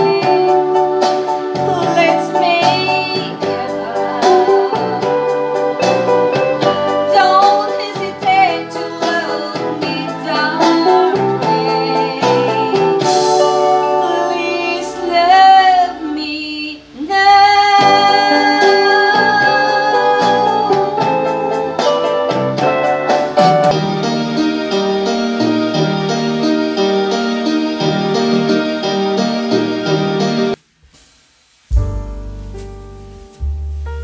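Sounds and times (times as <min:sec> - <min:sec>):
woman singing with vibrato: 0:00.0 - 0:22.2
backing track music: 0:00.0 - 0:34.0.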